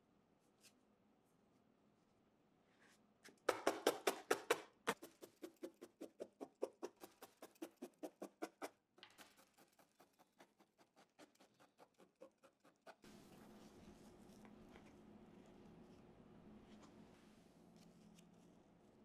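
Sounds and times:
felting needle poking wool: 3.2 - 14.9.

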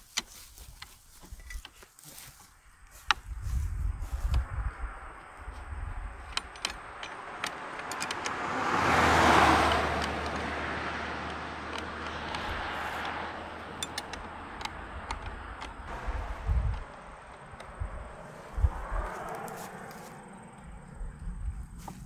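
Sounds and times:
wrench clicking on metal bolts: 6.2 - 8.4, 11.2 - 15.9
car driving past: 6.9 - 21.2.

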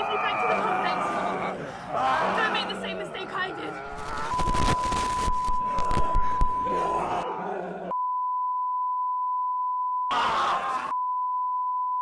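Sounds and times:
rough noisy sound: 3.8 - 6.8
steady beep tone: 4.0 - 7.0, 7.9 - 10.1.

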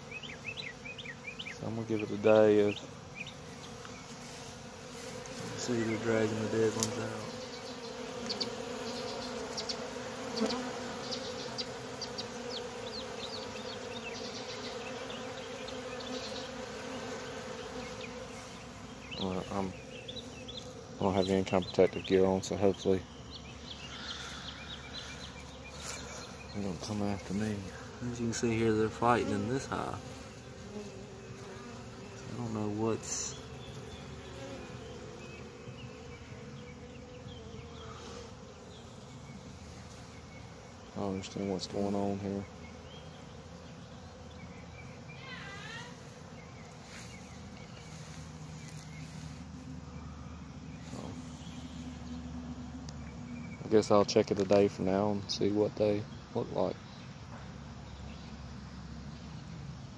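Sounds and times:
bees buzzing: 0.0 - 59.9
person speaking: 26.5 - 30.2, 32.3 - 33.4.

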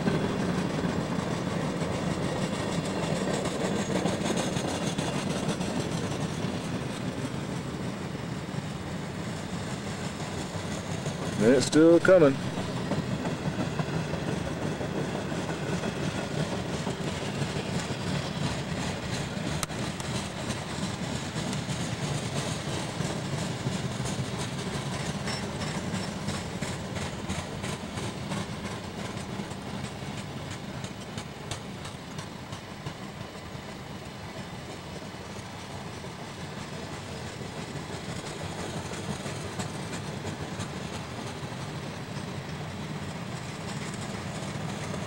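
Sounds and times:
freight train wheels rumbling on rail: 0.0 - 45.0
wheel clicks on rail: 15.6 - 33.4, 36.5 - 45.0.

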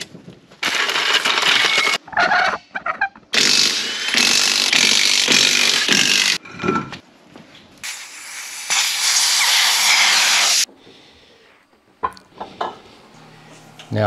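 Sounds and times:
loud rattling noise: 0.6 - 2.0
impact wrench hammering: 3.4 - 6.4.

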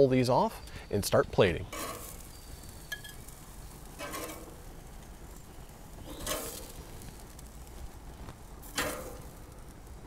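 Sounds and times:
metal spatula scraping grill grates: 1.7 - 4.7, 6.0 - 7.1, 8.6 - 9.4.

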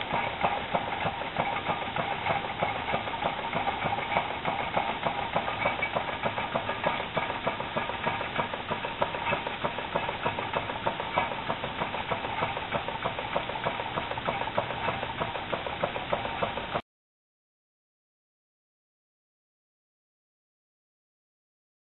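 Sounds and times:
small engine clattering clicks: 0.0 - 16.8.

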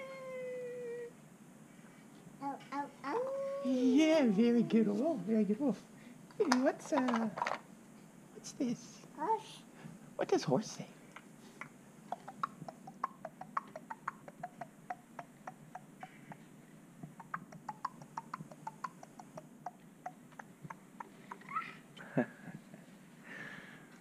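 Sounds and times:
tongue clicks: 11.6 - 21.6.

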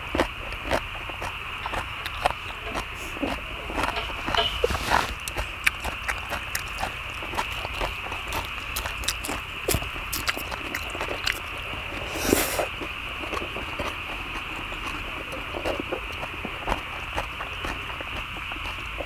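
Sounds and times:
chewing and mouth noises: 0.0 - 19.0
steady high hiss: 1.4 - 8.8.

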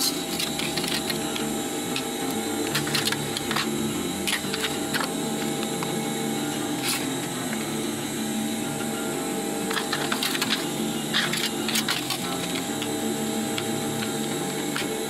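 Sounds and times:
plastic sheet clicks and crinkles: 0.0 - 1.4, 9.7 - 12.9.

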